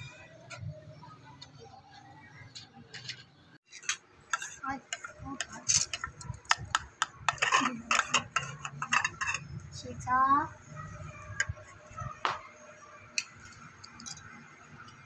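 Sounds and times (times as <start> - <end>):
spoons clinking on ceramic plates: 3.8 - 9.5.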